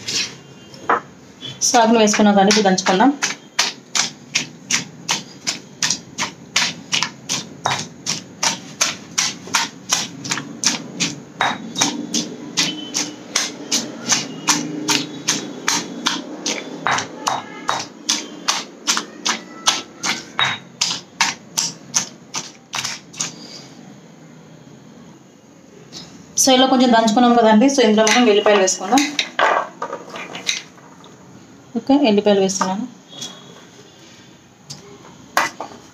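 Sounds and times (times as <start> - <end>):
stone pestle pounding in mortar: 2.1 - 23.3.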